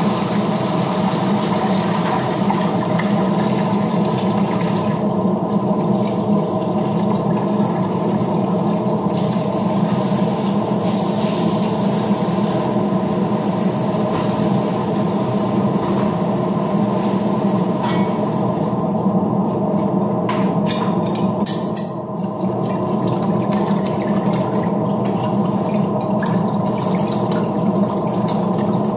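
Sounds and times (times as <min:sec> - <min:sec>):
water splashing into a pot: 0:21.4 - 0:28.9.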